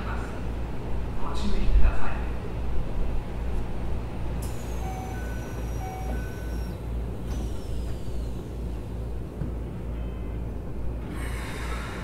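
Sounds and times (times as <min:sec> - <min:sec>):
train low rumble: 0:00.0 - 0:12.0
high whistling tones sliding down: 0:04.4 - 0:06.8.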